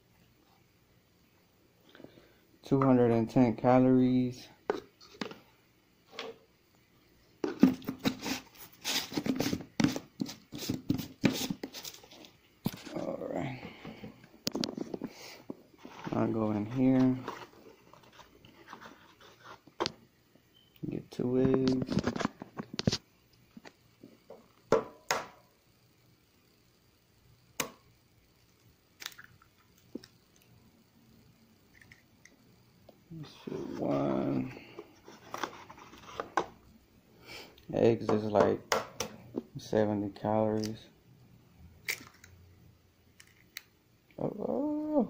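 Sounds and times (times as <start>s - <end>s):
plastic cup rustling and knocking: 7.4s - 13.0s, 15.8s - 20.0s, 21.5s - 23.0s
eggshells cracking: 28.5s - 30.5s, 41.8s - 42.4s.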